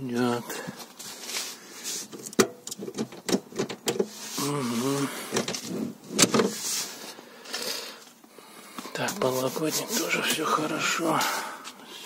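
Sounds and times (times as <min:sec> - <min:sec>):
murmured voice: 0:04.4 - 0:05.3.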